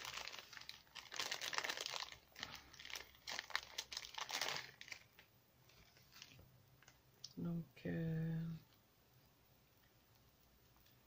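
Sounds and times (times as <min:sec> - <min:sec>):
plastic bag crinkling: 0:00.0 - 0:07.0.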